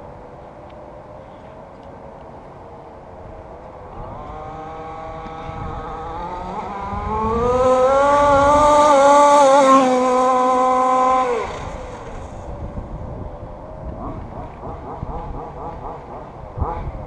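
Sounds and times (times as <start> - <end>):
rc car engine accelerating: 4.0 - 12.5.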